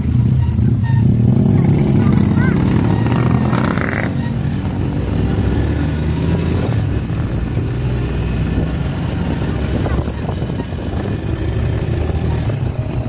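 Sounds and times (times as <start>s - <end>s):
wind and road noise: 0.0s - 13.0s
vehicle engine running: 5.0s - 13.0s.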